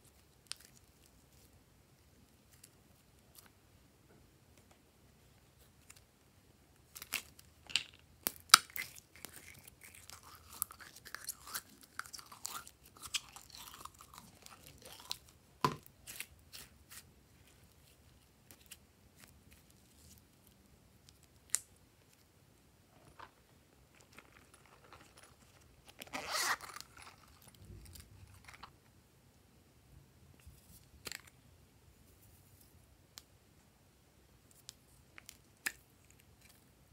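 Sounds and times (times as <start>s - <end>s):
crackly rustling: 22.9s - 28.8s.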